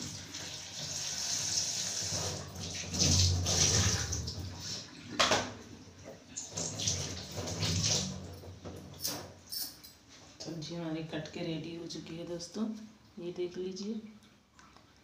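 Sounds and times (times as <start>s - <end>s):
tap water running into sink: 0.0s - 5.6s, 6.4s - 8.8s.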